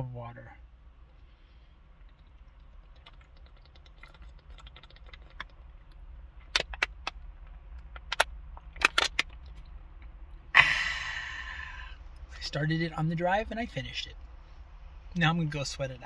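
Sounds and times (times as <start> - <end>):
man exhaling loudly: 10.5 - 12.0.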